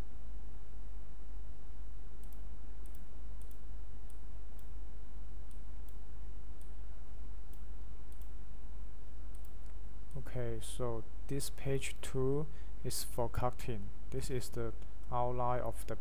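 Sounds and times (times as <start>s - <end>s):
steady low hum: 0.0s - 16.0s
computer mouse clicking: 2.2s - 4.7s, 7.5s - 8.4s, 9.3s - 10.2s.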